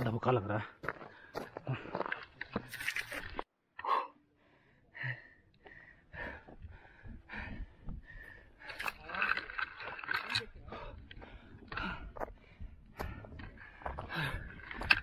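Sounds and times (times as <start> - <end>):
man gasping breaths: 3.8 - 8.8, 10.7 - 15.0.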